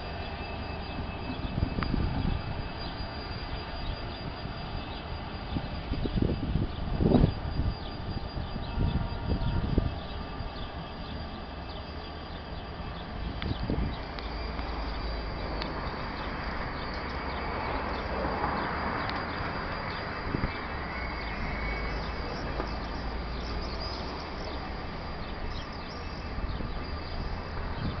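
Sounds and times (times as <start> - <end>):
diesel locomotive rumbling: 0.0 - 28.0.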